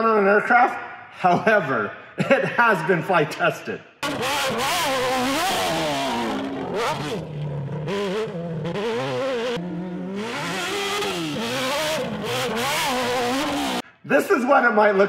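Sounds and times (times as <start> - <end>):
buggy engine revving hard: 4.0 - 13.8.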